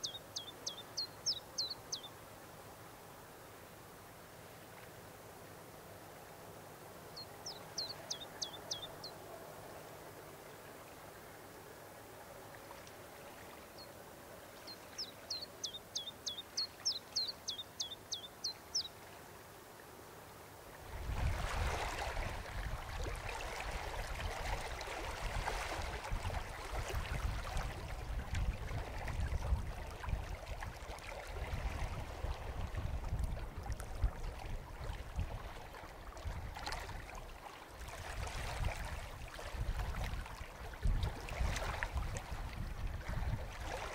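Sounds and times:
songbird chirping: 0.0s - 2.2s, 7.2s - 9.2s, 14.6s - 19.0s.

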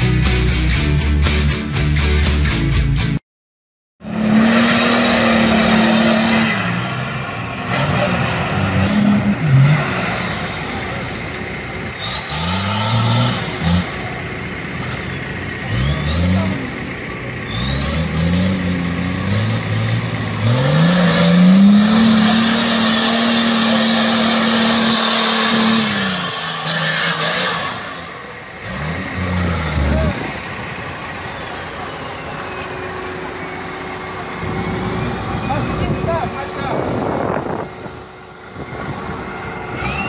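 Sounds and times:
engine revving hard: 4.0s - 11.1s, 12.0s - 14.1s, 15.6s - 30.4s
turbo whistle: 39.8s - 40.0s.

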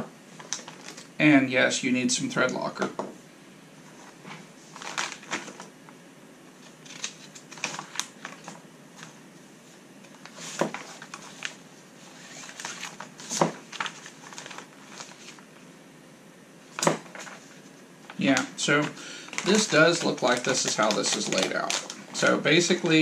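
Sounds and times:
booklet pages turning: 0.4s - 1.1s, 4.0s - 5.7s, 6.6s - 9.2s, 10.1s - 11.6s, 12.2s - 15.5s, 16.8s - 23.0s
paper rustling: 0.4s - 1.1s, 3.9s - 5.7s, 6.6s - 9.2s, 10.1s - 15.5s, 16.8s - 23.0s.

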